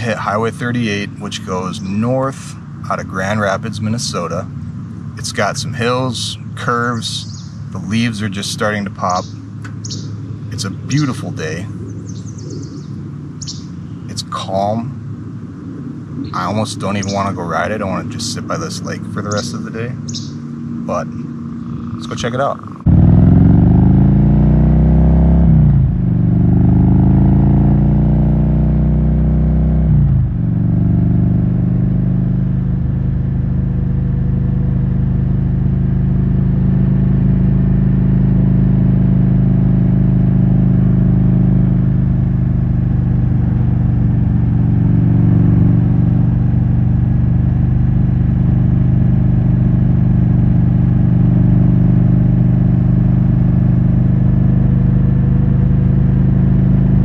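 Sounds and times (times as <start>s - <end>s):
motorcycle engine pulling away: 16.1s - 57.0s.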